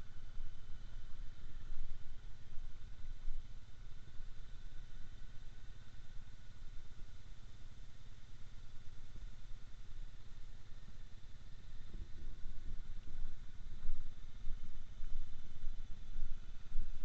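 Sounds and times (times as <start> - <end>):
thin steady whine: 0.0 - 17.0.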